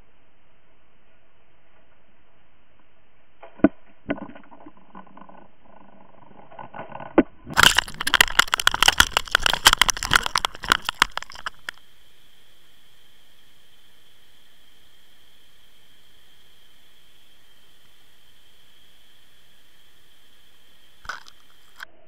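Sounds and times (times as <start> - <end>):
crackling splashes of water: 3.5 - 12.7, 18.7 - 21.9
rattles: 4.2 - 11.8
underwater hiss: 11.8 - 21.8.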